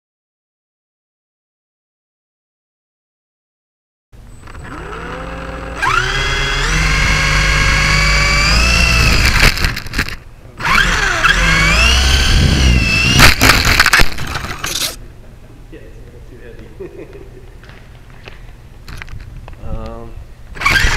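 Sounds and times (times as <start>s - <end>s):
helicopter motor whine: 4.4s - 9.5s, 10.6s - 15.0s.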